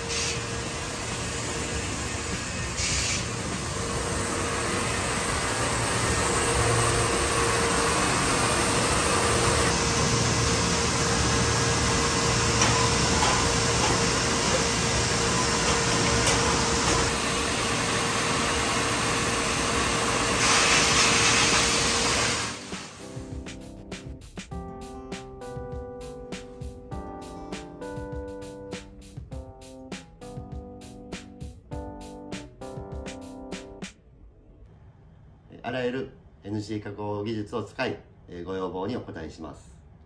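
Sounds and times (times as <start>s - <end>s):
mid-pitched machine tone: 1.8s - 17.1s.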